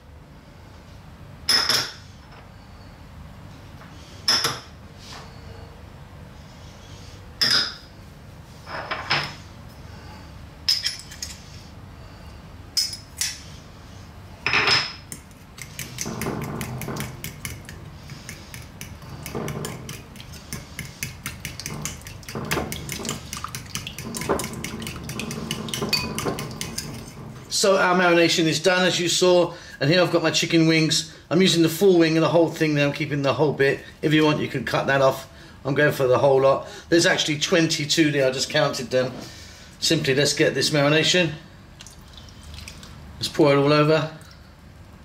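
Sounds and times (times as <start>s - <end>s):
wire whisk clinking against bowl: 15.1s - 27.1s
clinks in a ceramic bowl: 25.7s - 26.8s.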